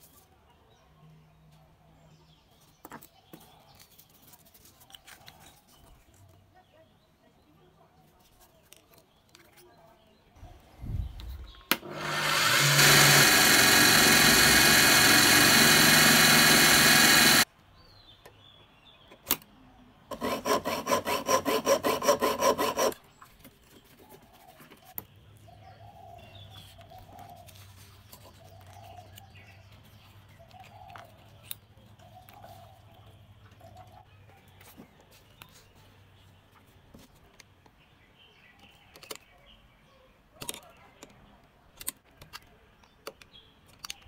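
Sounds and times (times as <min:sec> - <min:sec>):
drill press running: 0:11.7 - 0:17.4.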